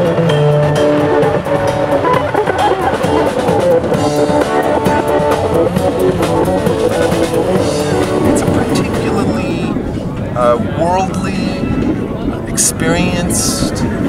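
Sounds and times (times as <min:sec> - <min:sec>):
steady drum beat: 0:00.0 - 0:11.8
held electric guitar notes: 0:00.0 - 0:12.4.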